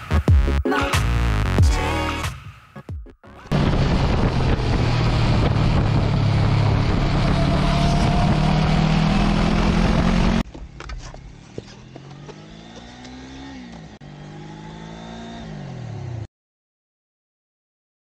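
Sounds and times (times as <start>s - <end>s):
engine drone: 3.3s - 16.3s
wind rush over microphone: 3.5s - 10.0s.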